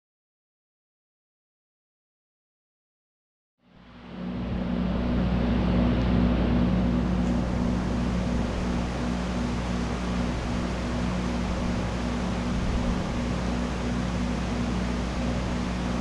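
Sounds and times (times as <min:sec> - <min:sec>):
electric fans whirring: 0:03.6 - 0:16.0
low hum: 0:03.6 - 0:16.0.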